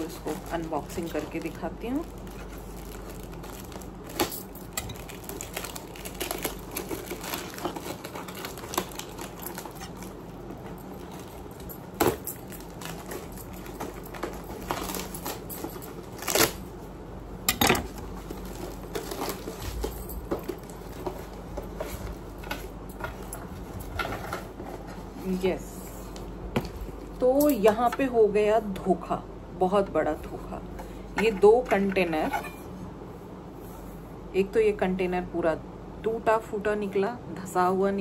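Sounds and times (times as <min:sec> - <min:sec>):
packaging crinkling and scraping: 0:00.0 - 0:16.7, 0:17.8 - 0:25.4
knife cutting parcel tape: 0:12.0 - 0:16.6.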